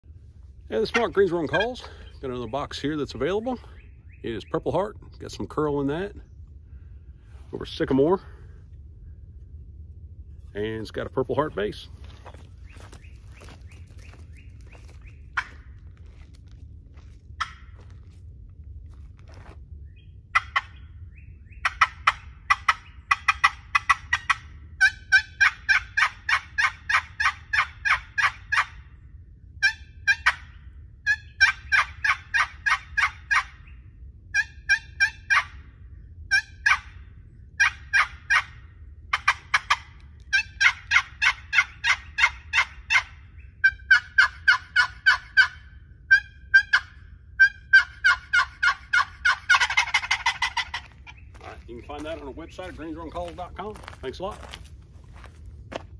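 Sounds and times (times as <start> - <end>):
turkey box call yelping: 0.7 - 1.8, 12.7 - 15.8, 17.4 - 17.9, 20.3 - 29.0, 29.6 - 35.7, 36.3 - 53.0.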